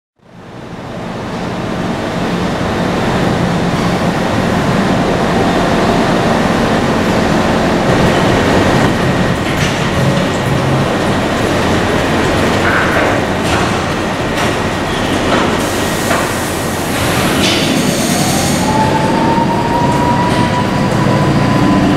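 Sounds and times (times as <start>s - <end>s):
subway train motors rumbling: 0.2s - 21.9s
train wheels clacking: 7.9s - 21.9s.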